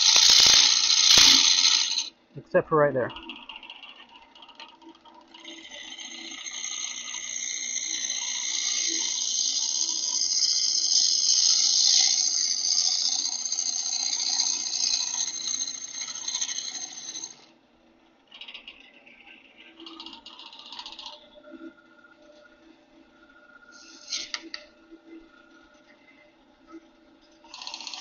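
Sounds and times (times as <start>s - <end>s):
gouge cutting spinning wood: 0.0s - 17.6s, 18.3s - 26.2s, 27.4s - 28.0s
lathe low hum: 0.0s - 28.0s.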